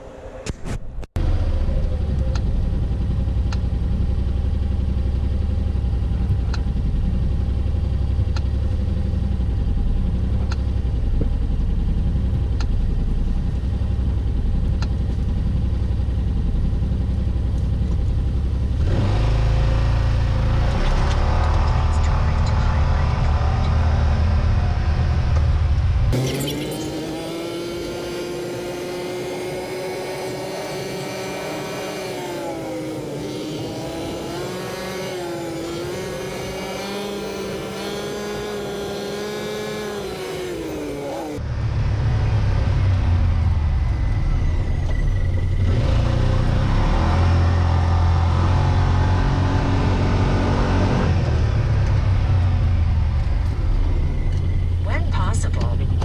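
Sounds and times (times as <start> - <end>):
deep rumble of travel noise: 0.0 - 26.2, 27.1 - 56.0
vehicle engine driving: 0.0 - 56.0.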